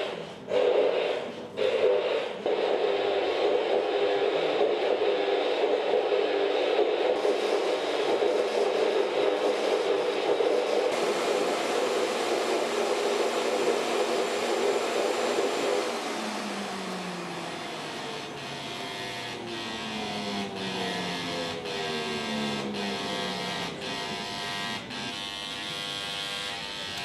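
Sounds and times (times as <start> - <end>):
kitchen appliance motors whirring: 10.8 - 27.0.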